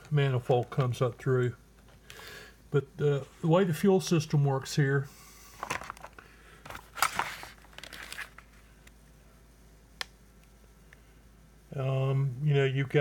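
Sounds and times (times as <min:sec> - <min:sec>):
plastic handling rustling: 0:05.6 - 0:08.9.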